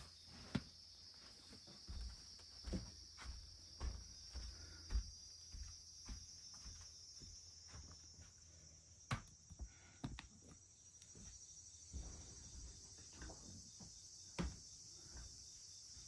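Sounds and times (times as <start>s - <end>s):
insect chorus chirring: 0.0s - 16.0s
soft footsteps: 0.0s - 16.0s.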